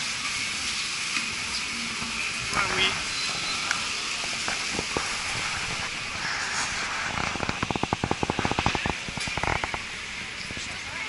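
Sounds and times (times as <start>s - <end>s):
fast regular clicks: 7.1s - 10.7s.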